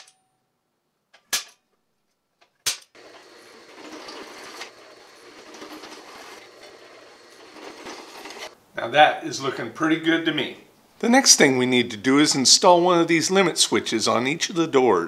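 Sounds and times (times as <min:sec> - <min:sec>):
drill press cutting metal: 0:02.9 - 0:08.6.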